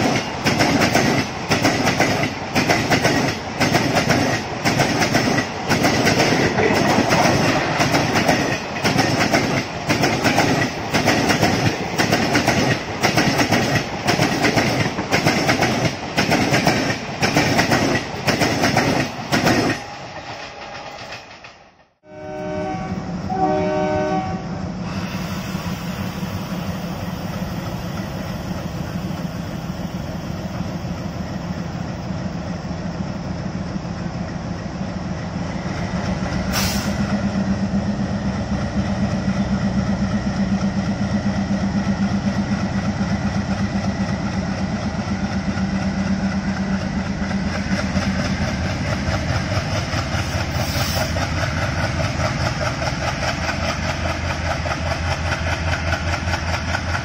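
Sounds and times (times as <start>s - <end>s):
locomotive horn: 22.0s - 24.6s
diesel locomotive engines throbbing: 22.1s - 57.0s.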